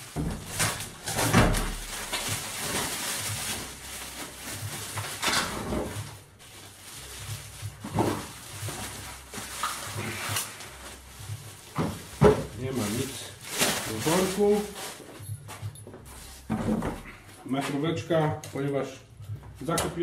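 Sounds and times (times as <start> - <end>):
plastic wrapping rustling: 0.0 - 20.0
knocks and heavy thump: 11.7 - 12.6.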